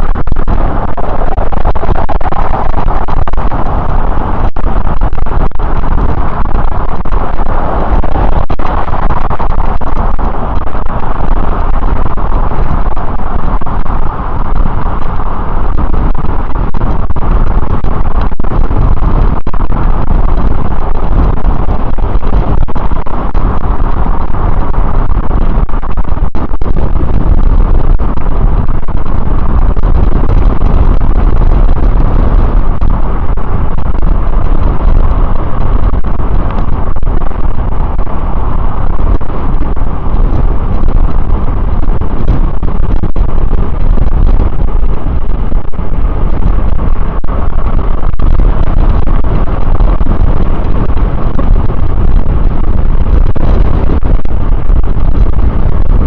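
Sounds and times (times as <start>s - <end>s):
wind rumble on microphone: 0.0s - 56.0s
road traffic passing: 0.1s - 43.0s.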